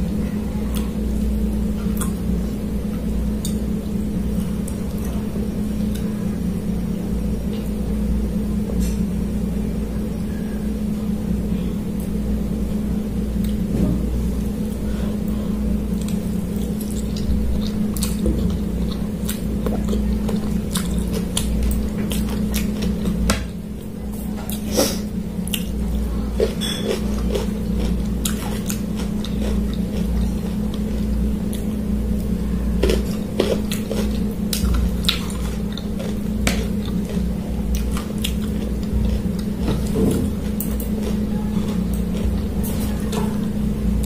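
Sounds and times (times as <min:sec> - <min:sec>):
steady low hum: 0:00.0 - 0:44.0
chewing and biting food: 0:01.8 - 0:06.1, 0:14.4 - 0:44.0.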